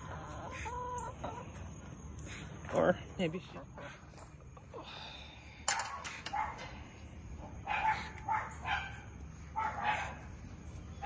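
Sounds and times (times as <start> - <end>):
dog barking high: 7.6 - 10.2.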